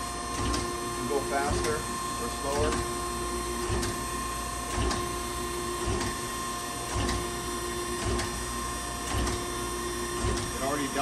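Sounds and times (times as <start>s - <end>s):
surface grinder hum and whine: 0.0s - 11.0s.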